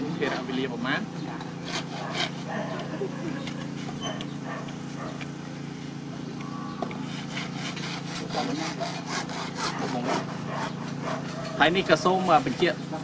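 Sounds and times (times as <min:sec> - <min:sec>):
hacksaw cutting plastic pipe: 0:07.1 - 0:11.0.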